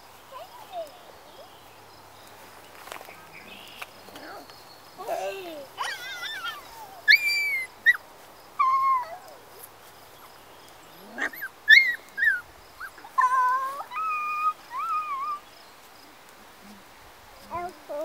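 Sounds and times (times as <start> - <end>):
puppies whining and yelping: 5.8 - 8.0, 8.6 - 9.6, 11.0 - 15.4.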